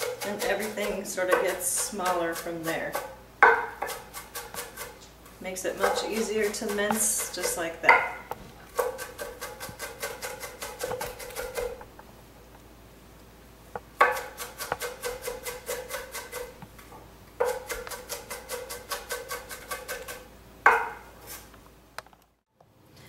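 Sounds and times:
knife chopping on wooden board: 0.0s - 2.2s, 2.9s - 5.0s, 5.8s - 11.8s, 14.0s - 16.5s, 17.4s - 21.0s.

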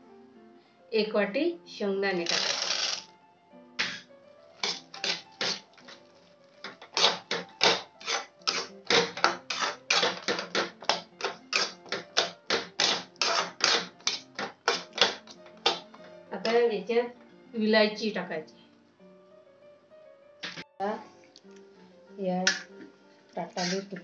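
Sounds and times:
background music: 0.0s - 24.0s
metal spatula scraping pan: 6.7s - 11.8s, 12.9s - 15.9s, 23.6s - 24.0s.

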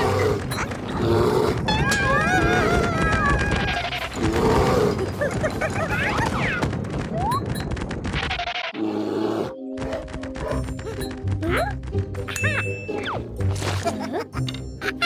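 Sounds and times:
rapid thuds and rumble: 0.0s - 8.4s
cartoon music: 10.4s - 13.4s.

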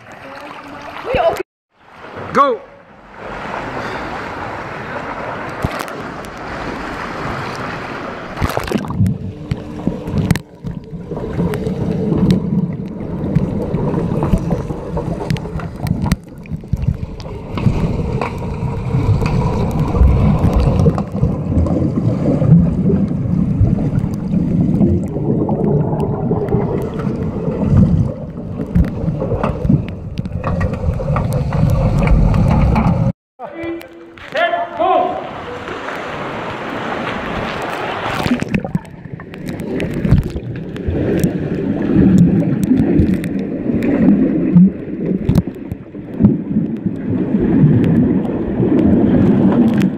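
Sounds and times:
swimmers splashing: 0.0s - 8.8s, 34.3s - 38.7s
muffled underwater rumble: 8.4s - 33.1s.

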